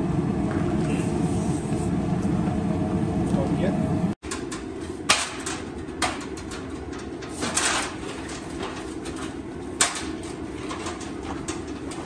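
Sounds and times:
aluminium ladder clanking: 4.2s - 12.0s.

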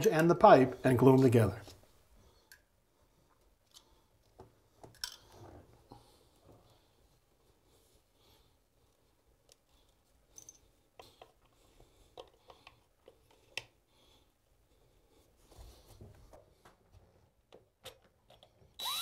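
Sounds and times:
faint metal clicks and taps: 10.4s - 13.8s, 17.5s - 18.7s.

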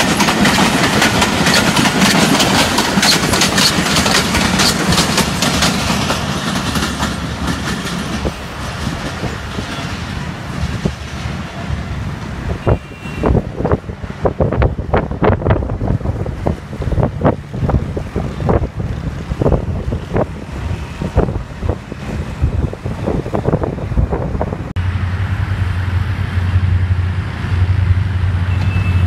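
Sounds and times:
train wheels clattering over rail joints: 0.0s - 11.5s
wind buffeting microphone: 0.0s - 25.4s.

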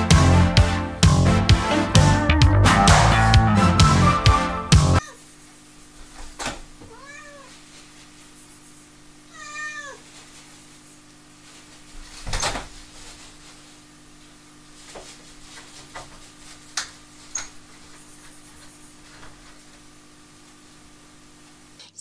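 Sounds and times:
cat meowing: 5.0s - 5.2s, 6.9s - 7.6s, 9.3s - 10.1s.

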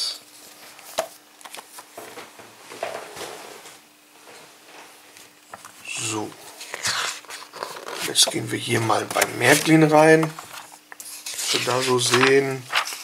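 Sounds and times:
faint steady hum: 0.0s - 13.0s
glossy pages turning: 10.4s - 13.0s.

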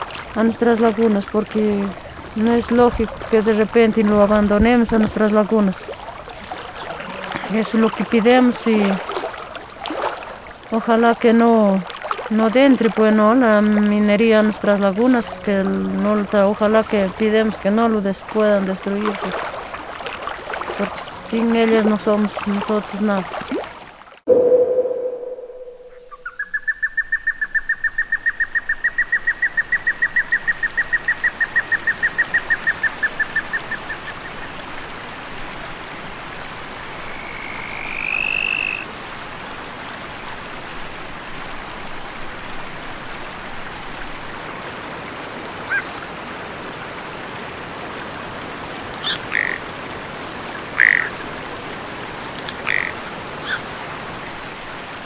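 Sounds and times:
animal pulsed trill: 24.3s - 26.4s
rising and falling whistle: 24.3s - 26.4s
short chirps: 24.3s - 26.4s.

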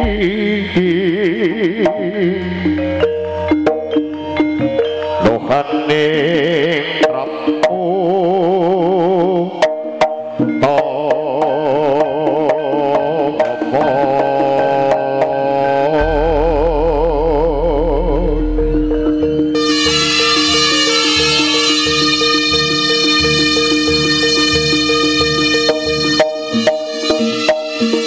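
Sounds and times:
hand drum strokes: 13.4s - 22.4s
deep low note: 16.0s - 20.7s
wavering melody line: 16.0s - 28.0s.

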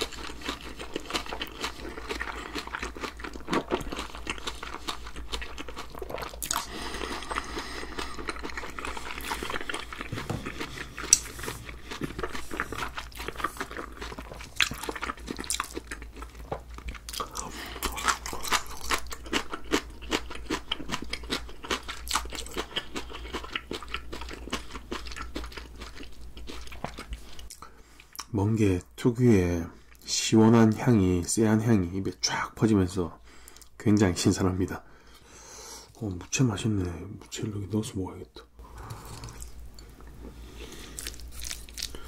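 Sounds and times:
person chewing and crunching: 0.0s - 28.3s, 38.6s - 42.0s.

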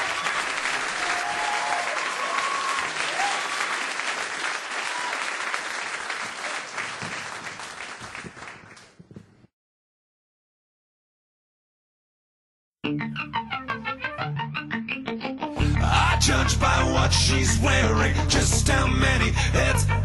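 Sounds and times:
audience applauding: 0.0s - 9.0s.

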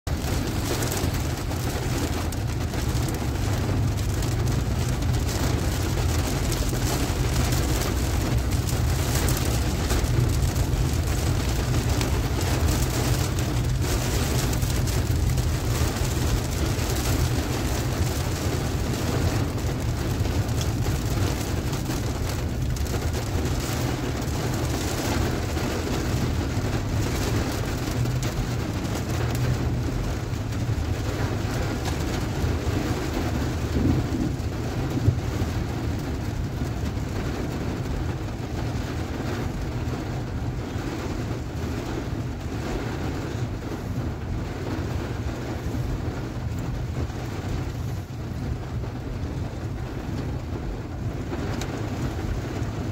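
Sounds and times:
heavy rain on car roof: 0.0s - 52.9s
low rumble: 28.2s - 36.4s.

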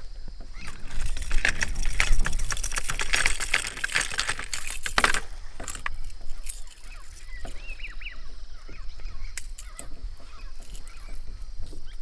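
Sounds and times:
plastic fishing lures clattering: 0.7s - 7.6s.

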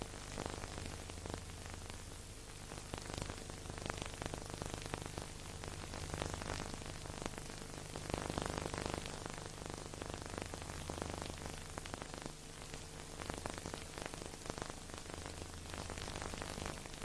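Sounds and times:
low steady hum: 0.0s - 17.0s
record surface crackle and hiss: 0.0s - 17.0s.

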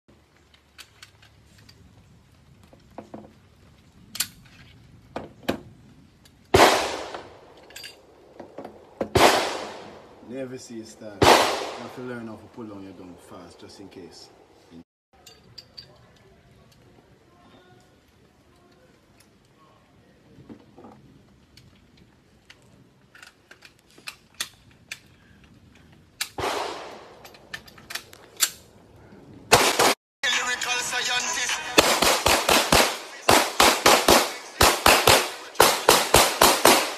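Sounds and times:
metallic clicks of gun handling: 0.2s - 1.9s, 4.0s - 4.8s, 7.5s - 8.1s, 21.5s - 26.4s, 27.1s - 28.8s
echoing gunshot: 6.6s - 7.4s, 9.1s - 10.2s, 11.2s - 12.3s, 26.4s - 27.2s, 29.5s - 30.0s, 31.8s - 36.9s.

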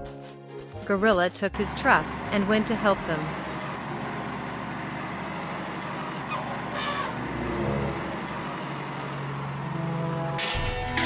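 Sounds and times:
truck engine running: 1.1s - 11.0s
truck horn honk: 6.2s - 8.3s.

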